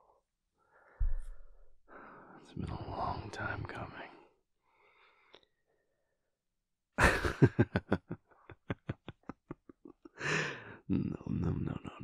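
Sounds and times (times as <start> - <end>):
man laughing: 7.0 - 10.6.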